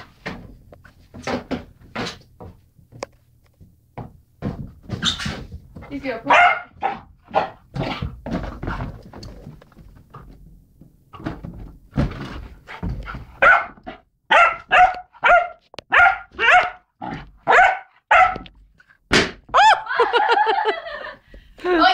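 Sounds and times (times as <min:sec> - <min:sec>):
puppy yapping: 0:13.4 - 0:16.8, 0:17.5 - 0:18.4.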